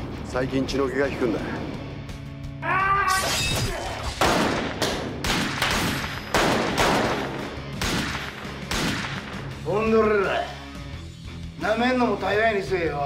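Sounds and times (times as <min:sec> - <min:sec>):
person yelling: 0:02.6 - 0:04.0
rapid gunshots: 0:04.2 - 0:09.5.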